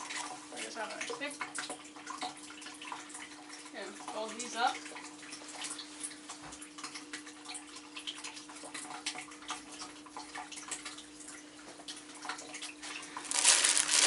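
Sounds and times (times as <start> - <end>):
cloth rustling: 13.2 - 14.0
plastic packaging crinkling: 13.2 - 14.0.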